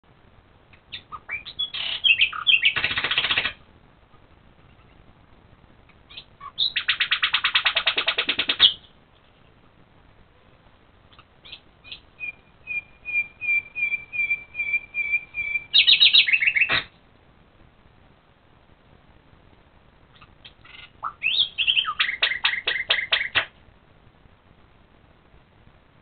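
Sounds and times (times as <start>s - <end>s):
bird fast trill: 0.9s - 3.6s, 6.1s - 8.9s, 11.1s - 16.9s, 20.2s - 23.5s
bird whistled notes: 1.0s - 2.8s, 11.4s - 16.8s, 20.7s - 23.4s.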